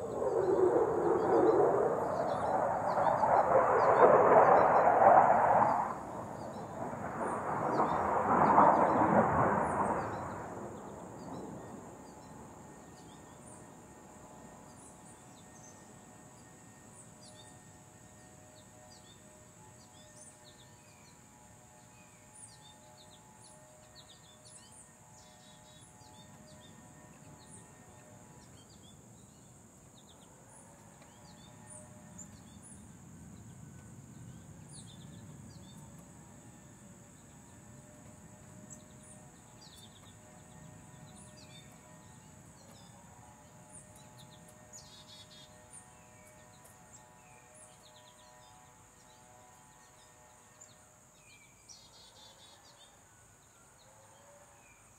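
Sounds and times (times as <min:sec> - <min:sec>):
high-pitched insect drone: 0:00.0 - 0:06.7
jet passing by roaring: 0:00.0 - 0:14.5
distant motor hum: 0:00.0 - 0:14.6.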